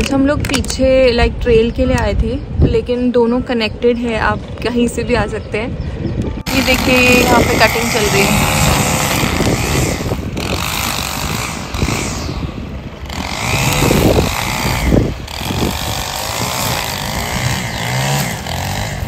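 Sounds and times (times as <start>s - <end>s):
string trimmer engine cutting grass: 6.4s - 19.0s.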